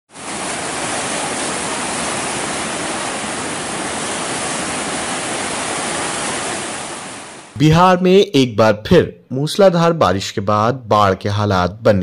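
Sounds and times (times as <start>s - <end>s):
floodwater rushing: 0.1s - 7.6s.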